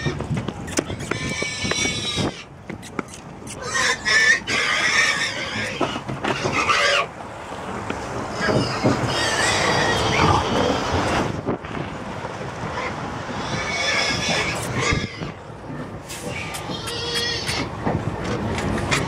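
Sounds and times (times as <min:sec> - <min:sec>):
pigs squealing and grunting: 0:00.0 - 0:07.1, 0:08.3 - 0:11.1, 0:12.7 - 0:15.4, 0:16.3 - 0:17.7.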